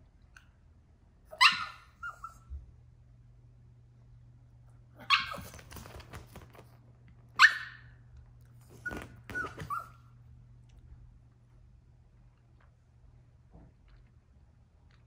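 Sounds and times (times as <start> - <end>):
puppy barking: 1.3 - 2.4, 5.0 - 5.8, 7.4 - 7.9, 8.8 - 10.0
puppy yipping: 1.3 - 2.5, 5.0 - 6.0, 7.4 - 7.9, 8.7 - 10.1.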